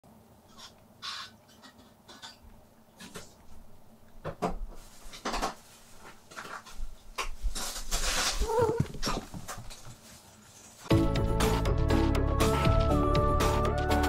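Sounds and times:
rustling: 4.6 - 10.9.

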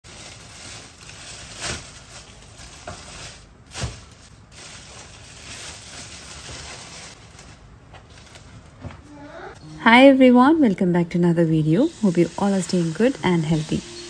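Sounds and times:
rustling in plastic container: 0.0 - 8.8.

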